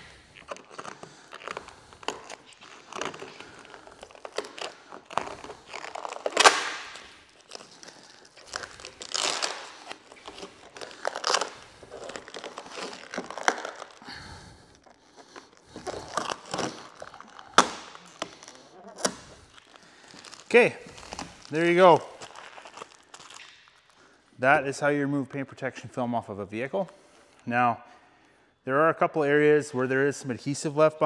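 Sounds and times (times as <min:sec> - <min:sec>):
plastic film crinkling as peeled: 0:00.0 - 0:24.2.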